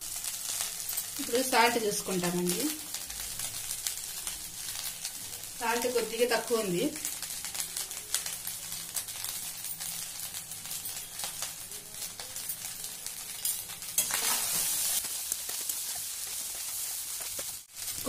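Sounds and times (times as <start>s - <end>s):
rice sizzling in a pan: 0.0s - 18.0s
spatula scraping a pan: 13.4s - 17.5s.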